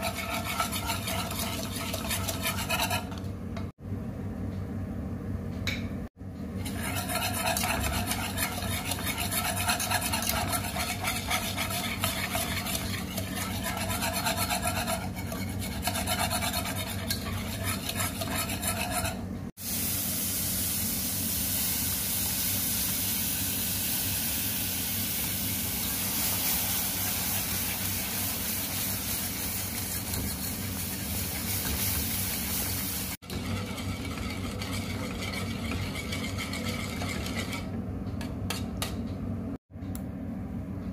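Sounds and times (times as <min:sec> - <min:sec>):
food stirred and scraped in pan: 0:00.0 - 0:03.3, 0:06.6 - 0:19.2, 0:25.8 - 0:38.7
steady sizzle: 0:19.6 - 0:36.8.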